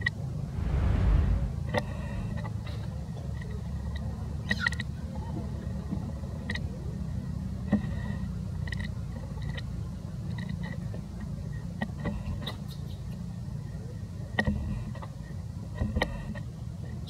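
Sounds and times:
low rumble: 0:00.3 - 0:02.6.

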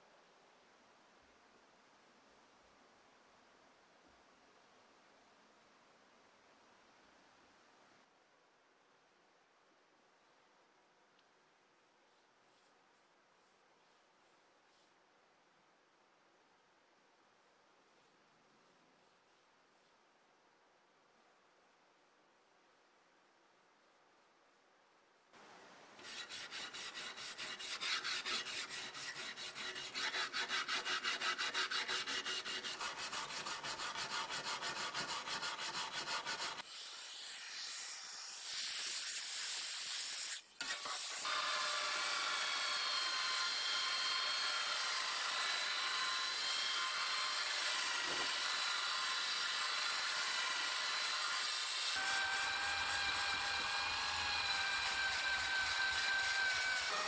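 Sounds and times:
wire brush scrubbing metal: 0:26.0 - 0:41.4, 0:49.2 - 0:57.0
power tool abrasive disc whine: 0:40.6 - 0:57.0.

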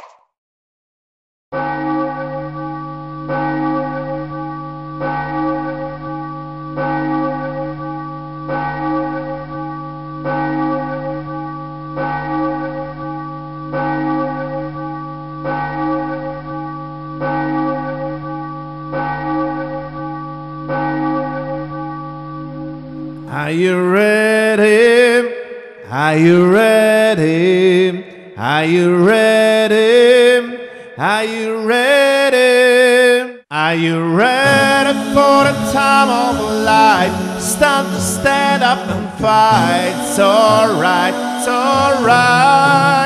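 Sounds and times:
bell tolling slowly: 0:01.6 - 0:23.5, 0:34.4 - 0:43.0.

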